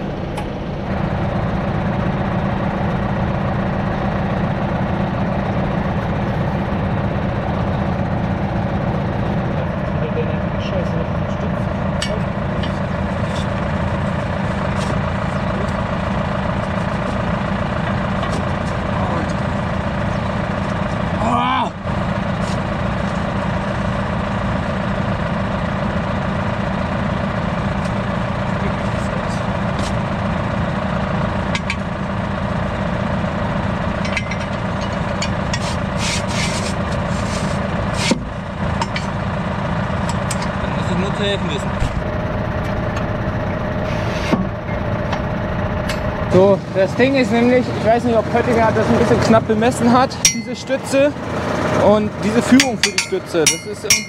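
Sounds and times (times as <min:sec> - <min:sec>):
tractor engine idling: 0:00.0 - 0:54.0
wrench clanking on steel stand: 0:34.0 - 0:35.6, 0:50.2 - 0:50.8, 0:52.5 - 0:54.0.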